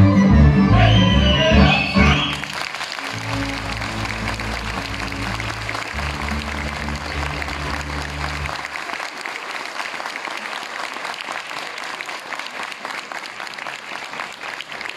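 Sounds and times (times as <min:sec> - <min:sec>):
audience applauding: 0:01.6 - 0:14.9
music low held notes: 0:03.2 - 0:08.6.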